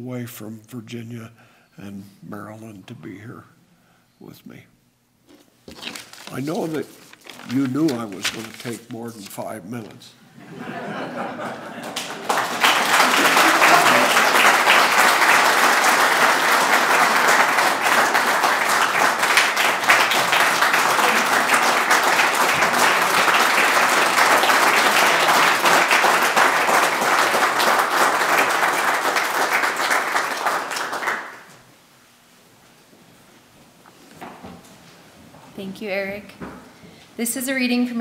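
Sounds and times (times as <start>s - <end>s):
audience applauding: 11.4s - 31.6s.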